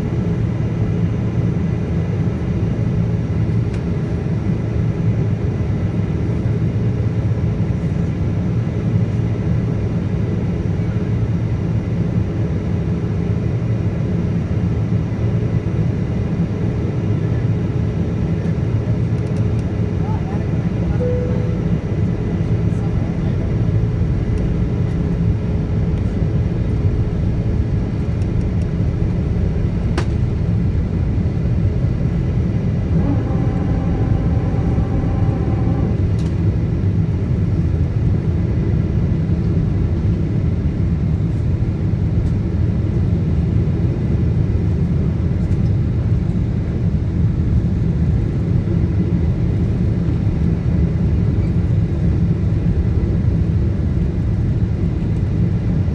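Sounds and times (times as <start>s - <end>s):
airplane cabin rumble: 0.0s - 55.9s
brief higher tone: 20.9s - 22.2s, 32.9s - 36.2s.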